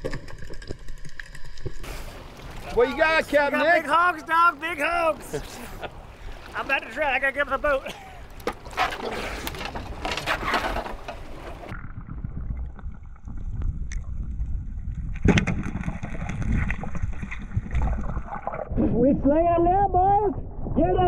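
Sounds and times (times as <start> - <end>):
crackling clicks underwater: 0.0 - 1.8, 11.1 - 18.6
water splashing beside a boat: 0.0 - 11.8
muffled underwater rumble: 11.6 - 19.0.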